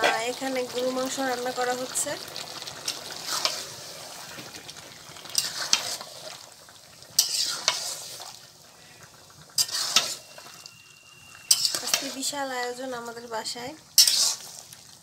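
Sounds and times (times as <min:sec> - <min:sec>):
metal spatula scraping pot: 0:00.0 - 0:00.4, 0:02.9 - 0:04.1, 0:05.3 - 0:06.4, 0:07.2 - 0:08.4, 0:09.6 - 0:10.7, 0:11.4 - 0:12.4, 0:14.0 - 0:14.7
meat sizzling: 0:00.0 - 0:15.0.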